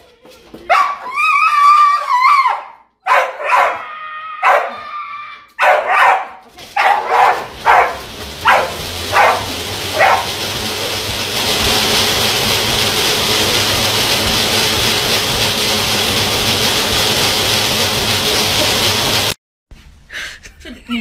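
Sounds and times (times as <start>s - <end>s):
dog barking: 0.7s - 1.0s, 2.4s - 4.9s, 5.6s - 10.4s
treadmill belt whirring: 5.6s - 19.4s.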